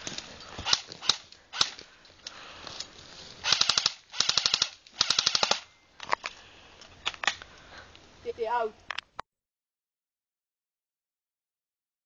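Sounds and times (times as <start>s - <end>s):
sharp gun clicks: 0.6s - 1.8s, 3.5s - 5.7s
airsoft gun automatic bursts: 3.4s - 5.7s.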